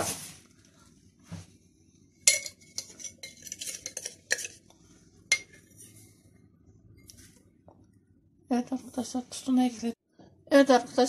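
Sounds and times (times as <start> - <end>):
metal spoon clinking on container: 2.3 - 4.6.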